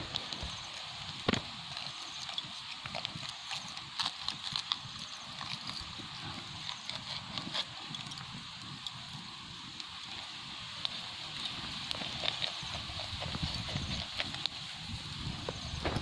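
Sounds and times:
clicks and knocks handling fish: 0.0 - 9.0.

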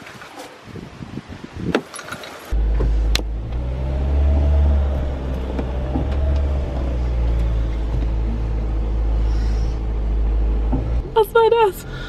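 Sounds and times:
car engine low rumble: 2.5 - 12.0.

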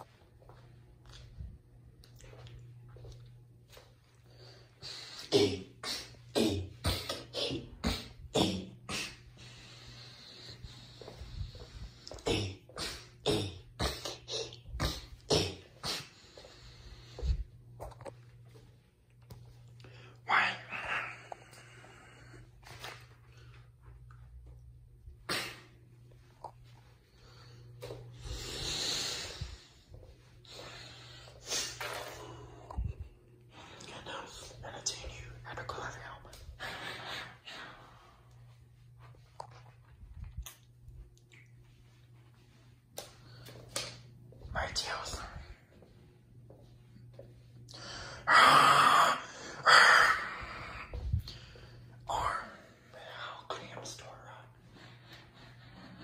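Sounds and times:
footsteps on tiled floor: 0.0 - 4.3, 10.0 - 13.3, 14.0 - 19.8, 22.6 - 32.3, 37.8 - 47.7, 50.9 - 52.3
low steady hum: 0.0 - 56.0
person breathing loudly: 8.9 - 13.2, 27.1 - 33.9, 47.7 - 52.9.

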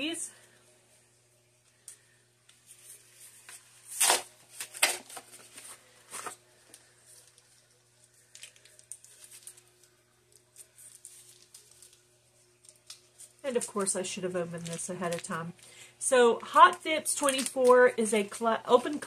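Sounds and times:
foil crinkling: 2.7 - 15.8, 16.6 - 19.0
cardboard ripping: 3.8 - 6.4.

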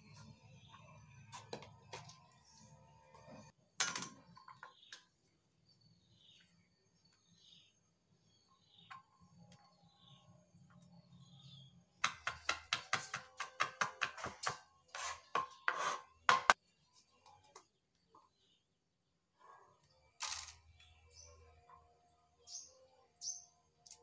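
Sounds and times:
cleaver chopping on plastic board: 12.0 - 14.6.

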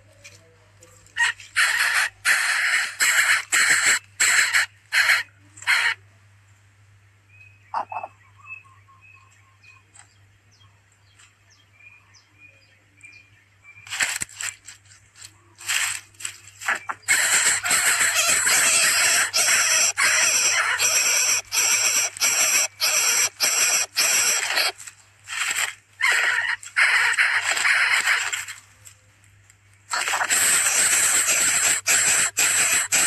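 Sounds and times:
faint high chirp: 7.3 - 10.7
dry grass rustling and crackling: 13.8 - 18.1, 24.4 - 31.7.

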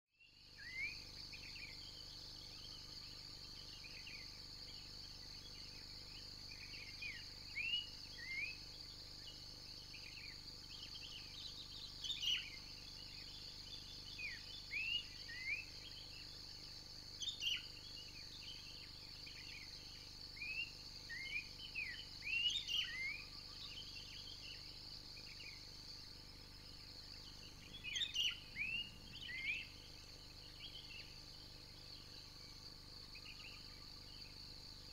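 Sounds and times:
insect drone: 0.2 - 34.9
birds chirping: 26.7 - 34.9.

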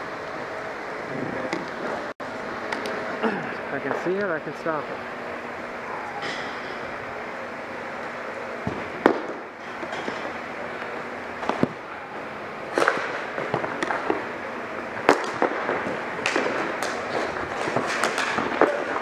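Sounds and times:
hockey sticks clacking: 16.2 - 19.0.

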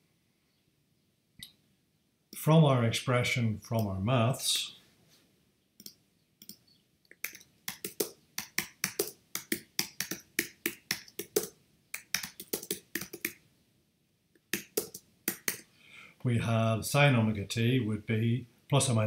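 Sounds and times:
computer keyboard typing: 5.8 - 13.4, 14.5 - 15.6.

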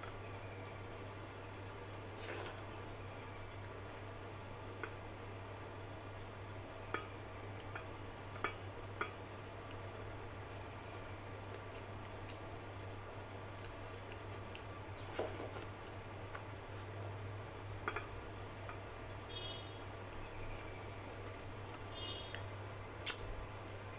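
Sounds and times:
steady low hum: 0.0 - 23.9
soft squishing of food: 0.1 - 19.0.

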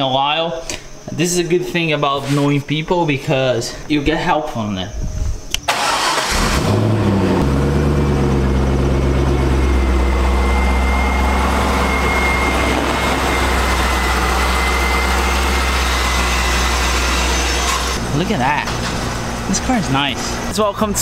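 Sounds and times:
car engine idling: 5.7 - 18.1
faint high whine: 8.1 - 18.7.

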